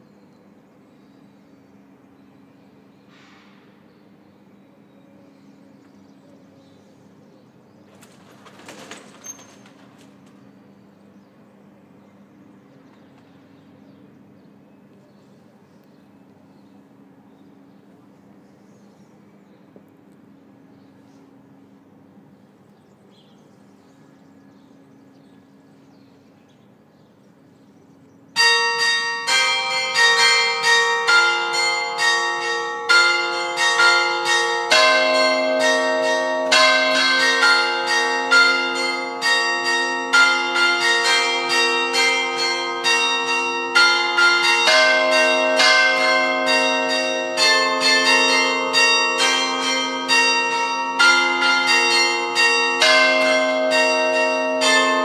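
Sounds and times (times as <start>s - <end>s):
church bells ringing: 28.4s - 55.0s.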